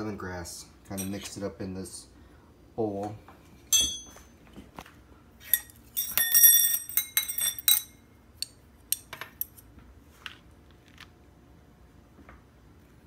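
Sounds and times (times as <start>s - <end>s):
cutlery clinking on dishes: 5.5s - 8.0s.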